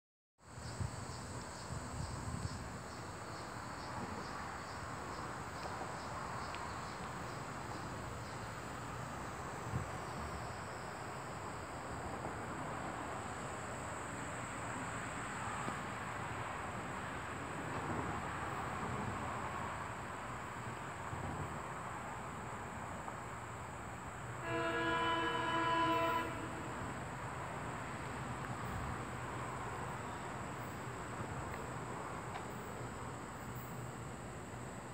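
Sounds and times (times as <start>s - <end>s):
insects chirping: 0.4s - 34.9s
train horn blast: 24.4s - 27.2s.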